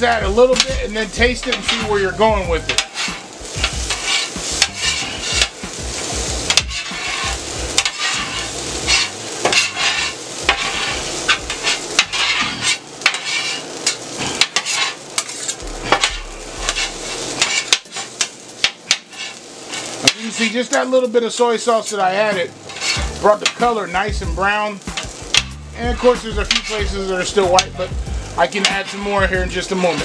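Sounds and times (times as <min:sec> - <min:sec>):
rice sizzling on a griddle: 0:00.0 - 0:30.0
metal spatulas scraping and clacking: 0:01.4 - 0:02.0, 0:02.7 - 0:03.3, 0:03.9 - 0:05.6, 0:06.5 - 0:16.1, 0:16.7 - 0:20.6, 0:22.6 - 0:23.7, 0:24.9 - 0:26.8, 0:28.5 - 0:30.0.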